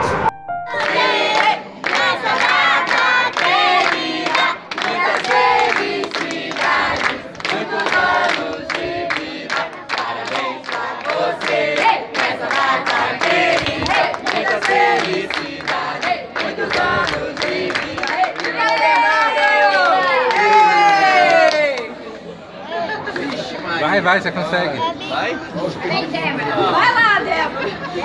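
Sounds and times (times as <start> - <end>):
crowd singing a birthday song: 0.0 - 20.2
rhythmic hand-clapping: 0.7 - 21.9.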